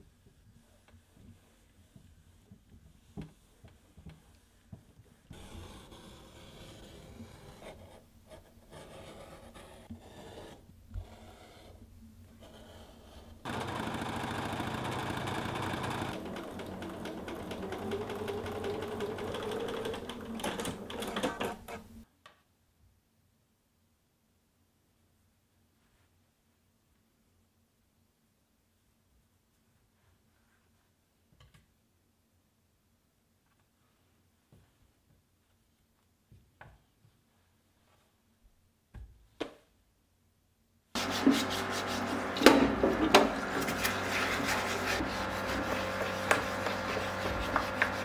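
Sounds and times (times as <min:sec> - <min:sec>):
electric sewing machine stitching: 0:13.4 - 0:21.8, 0:41.0 - 0:48.0.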